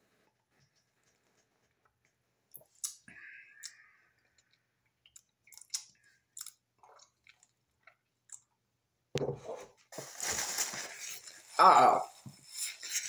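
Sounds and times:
mouth clicks and lip smacks: 0:02.5 - 0:08.5.

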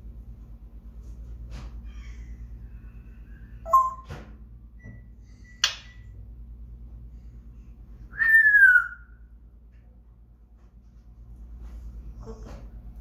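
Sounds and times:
parrot whistling: 0:03.6 - 0:04.1, 0:08.1 - 0:09.2.

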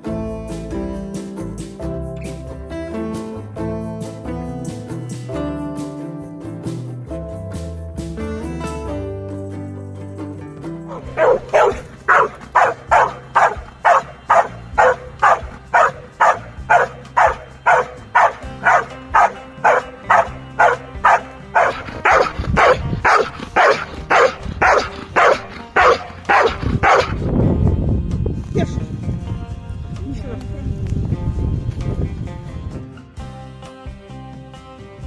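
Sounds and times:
background music: 0:00.0 - 0:35.0
dog barking: 0:10.9 - 0:27.2.

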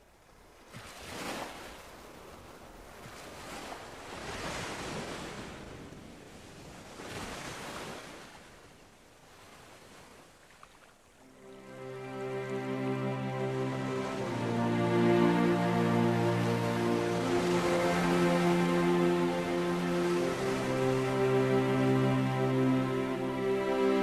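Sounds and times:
ocean waves washing in: 0:11.2 - 0:24.0.

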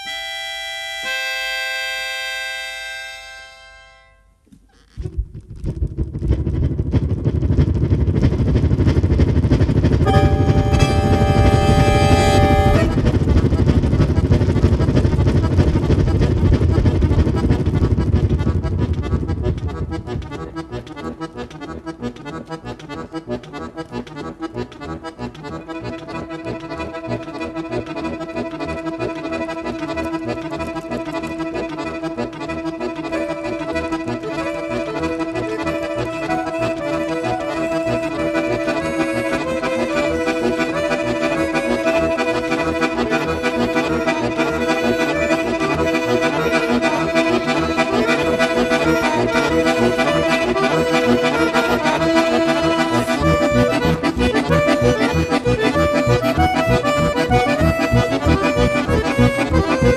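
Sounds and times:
accordion music: 0:00.0 - 0:05.3, 0:05.9 - 0:59.9
loud low rumble: 0:05.0 - 0:21.1.

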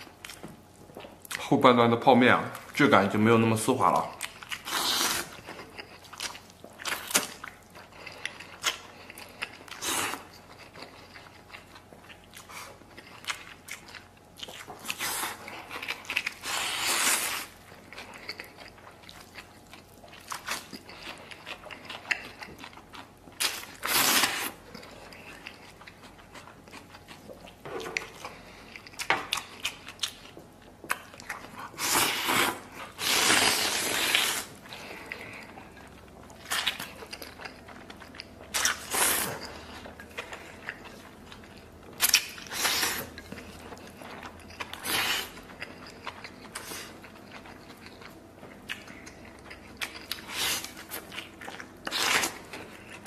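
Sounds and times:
person chewing noodles: 0:00.0 - 0:01.5, 0:03.9 - 0:53.0.

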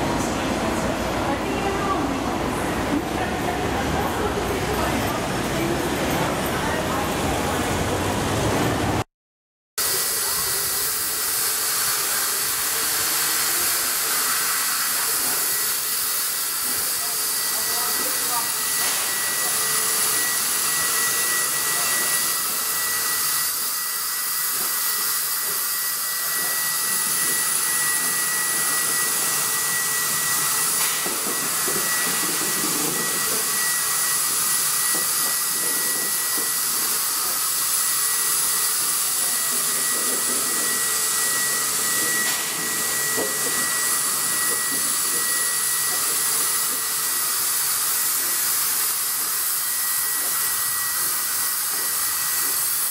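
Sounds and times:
steam locomotive venting steam: 0:09.8 - 0:52.9.

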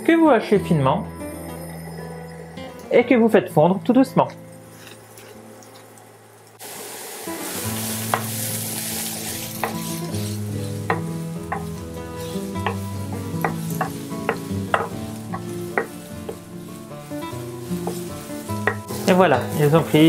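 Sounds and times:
onion sizzling in a pan: 0:01.0 - 0:20.0
spatula scraping and knocking pan: 0:09.6 - 0:16.6, 0:17.6 - 0:19.6.

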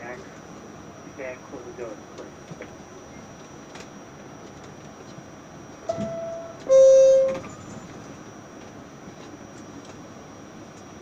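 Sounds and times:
two-tone subway door chime: 0:05.8 - 0:08.0.

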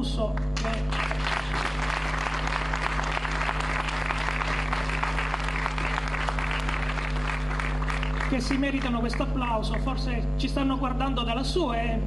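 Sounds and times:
low steady hum: 0:00.0 - 0:12.0
crowd applauding: 0:00.6 - 0:09.4.

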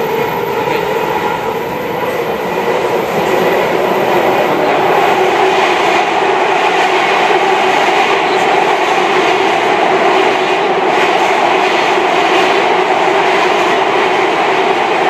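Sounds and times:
train rumbling and humming: 0:00.0 - 0:15.0.

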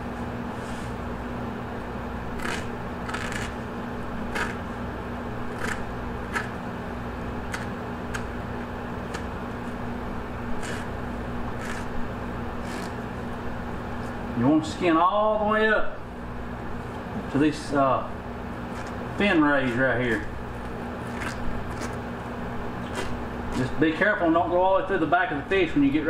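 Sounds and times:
steady hum: 0:00.0 - 0:26.0
knife scraping fish skin: 0:02.4 - 0:03.6, 0:04.2 - 0:04.7, 0:05.5 - 0:06.6, 0:10.5 - 0:12.0, 0:12.6 - 0:13.0, 0:21.0 - 0:22.0, 0:22.8 - 0:23.8.

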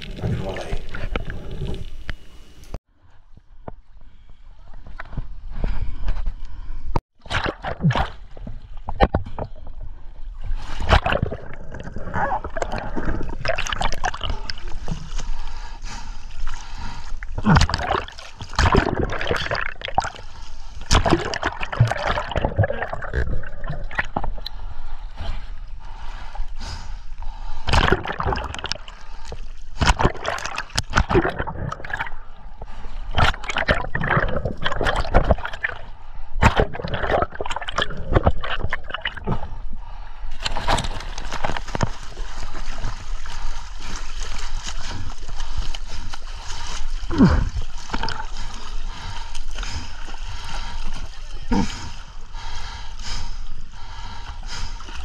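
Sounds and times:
water splashing and sloshing: 0:00.0 - 0:55.0.

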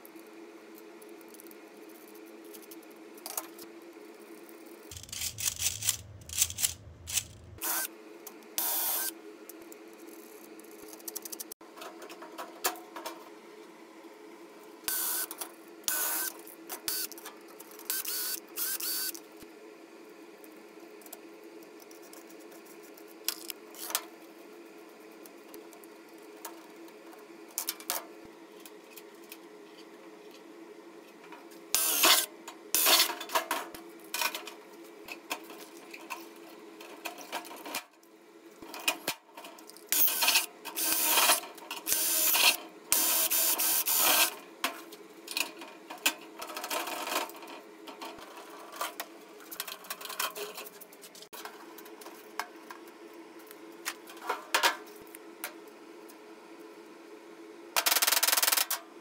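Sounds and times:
steady low hum: 0:04.8 - 0:07.8
metal parts clicking: 0:04.9 - 0:07.6
cordless drill on sheet metal: 0:08.6 - 0:09.1, 0:31.8 - 0:33.0, 0:40.0 - 0:44.3.

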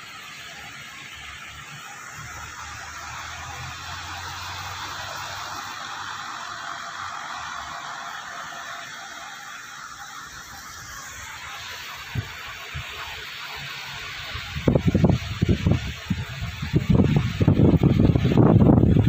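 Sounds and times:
rain hissing: 0:00.0 - 0:19.0
low engine hum: 0:01.8 - 0:09.8.

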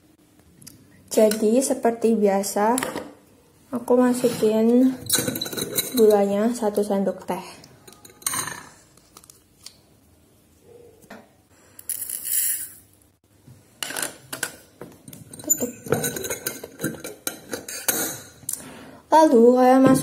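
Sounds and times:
plastic spoons clattering: 0:07.8 - 0:09.4, 0:13.8 - 0:18.3.

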